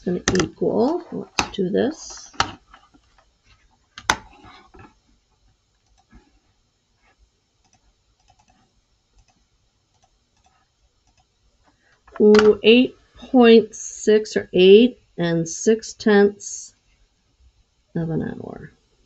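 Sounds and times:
faint computer clicks: 5.8 - 6.2, 7.6 - 11.3.

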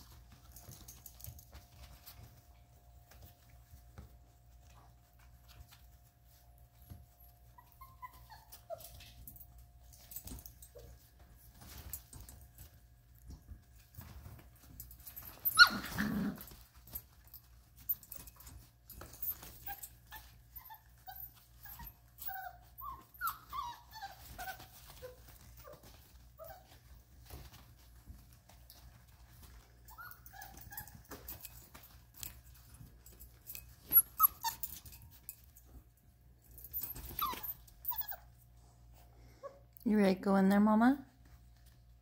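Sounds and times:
paws scuffling on pads: 0.0 - 35.9
puppies whimpering and yipping: 7.4 - 9.2, 15.1 - 16.6, 19.2 - 27.4, 29.5 - 31.9, 33.5 - 35.2, 36.6 - 38.4.

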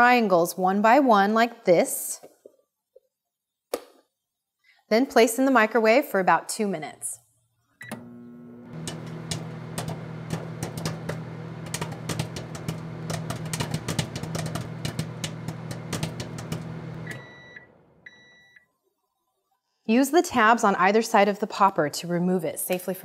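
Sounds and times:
microwave oven humming: 7.8 - 18.6
popcorn popping: 8.7 - 17.2
short microwave beeps: 17.0 - 18.6.

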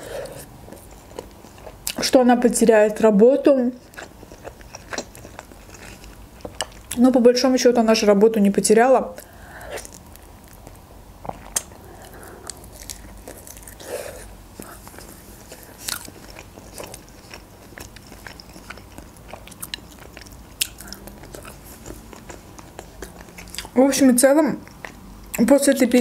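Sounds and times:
person chewing crunchy food: 0.0 - 2.0, 3.8 - 7.0, 9.2 - 23.8.

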